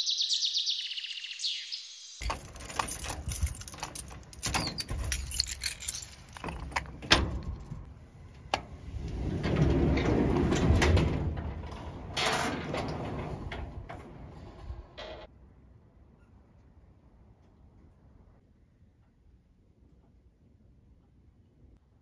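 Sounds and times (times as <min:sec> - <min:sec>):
keys jangling: 0:02.2 - 0:07.8
garage door rumbling open: 0:02.2 - 0:15.3.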